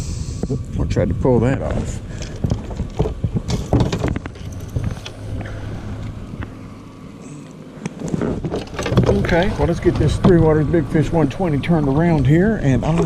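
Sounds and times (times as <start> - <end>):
wind buffeting microphone: 0.0 - 6.6, 8.0 - 13.0
low steady hum: 0.0 - 13.0
sharp knocks and rattles: 2.1 - 5.2, 7.9 - 12.2.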